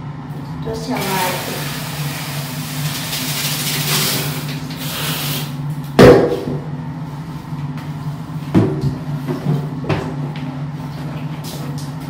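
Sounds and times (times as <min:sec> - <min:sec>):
steady low hum: 0:00.0 - 0:12.0
shower spraying into washbasin: 0:00.9 - 0:05.6
sharp loud knock: 0:06.0 - 0:06.6.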